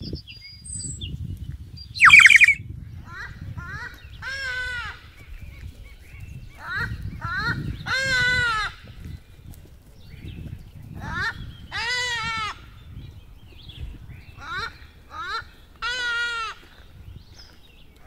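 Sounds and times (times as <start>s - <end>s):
bird calling nasally: 2.0s - 2.6s.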